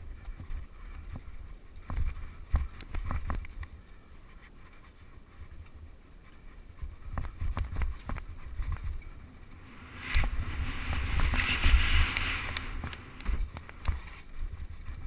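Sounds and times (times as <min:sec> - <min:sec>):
bike knocking and rattling: 0:00.0 - 0:04.9, 0:05.6 - 0:15.0
wind on microphone: 0:00.0 - 0:15.0.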